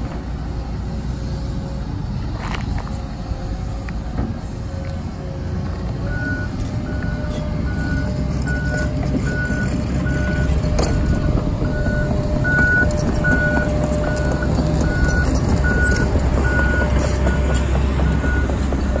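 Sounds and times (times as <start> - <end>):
diesel excavator engine rumble: 0.0 - 19.0
back-up alarm beeping: 6.1 - 19.0.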